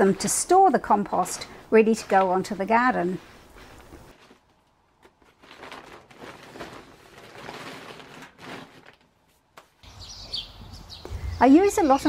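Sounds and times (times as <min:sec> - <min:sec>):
plastic bags rustling: 0:01.2 - 0:09.8.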